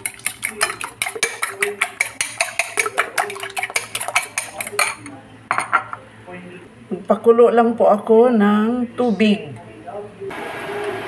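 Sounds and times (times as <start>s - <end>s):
fork beating eggs in glass bowl: 0.0s - 5.1s.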